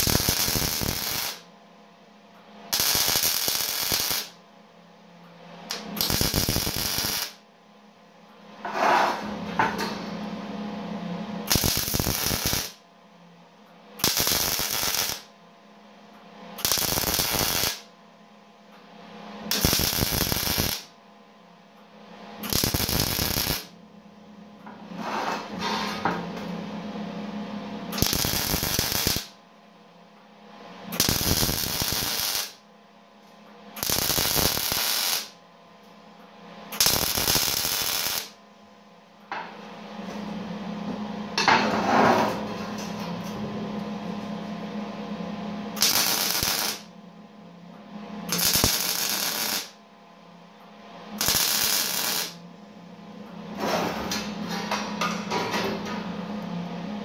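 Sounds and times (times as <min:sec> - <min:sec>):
crackling welding arc bursts: 0:00.0 - 0:01.5, 0:02.7 - 0:04.4, 0:05.7 - 0:07.4, 0:11.5 - 0:12.8, 0:14.0 - 0:15.3, 0:16.6 - 0:17.9, 0:19.5 - 0:20.9, 0:22.4 - 0:23.7, 0:27.9 - 0:29.3, 0:31.0 - 0:32.6, 0:33.8 - 0:35.4, 0:36.8 - 0:38.4, 0:45.8 - 0:46.9, 0:48.3 - 0:49.8, 0:51.2 - 0:52.4.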